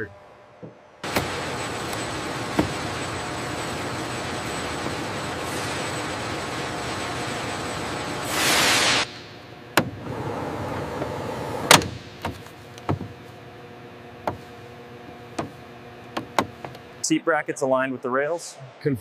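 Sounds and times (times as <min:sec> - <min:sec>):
machine hum: 0:00.0 - 0:19.0
hissing rush of air: 0:08.2 - 0:09.1.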